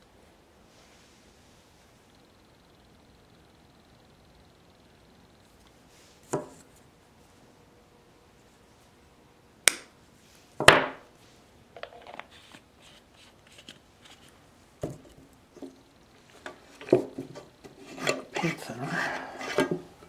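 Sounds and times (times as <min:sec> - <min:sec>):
sharp knocks on tabletop: 0:10.6 - 0:11.0.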